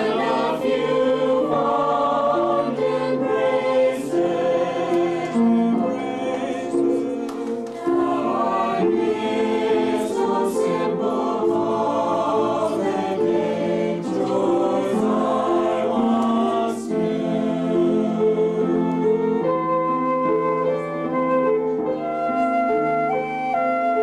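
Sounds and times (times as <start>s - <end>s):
group singing a carol: 0.0s - 19.5s
flute held notes: 19.0s - 24.0s.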